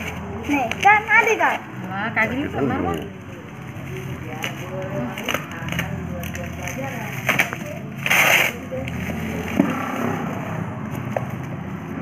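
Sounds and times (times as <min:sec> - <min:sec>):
bubble wrap crinkling: 0:03.5 - 0:09.6
bubble wrap tearing: 0:04.2 - 0:09.5.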